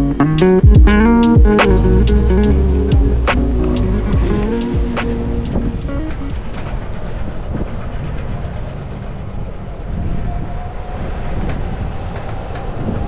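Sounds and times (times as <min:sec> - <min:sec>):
golf cart rumbling: 0:00.0 - 0:09.8
wind on microphone: 0:00.2 - 0:13.0.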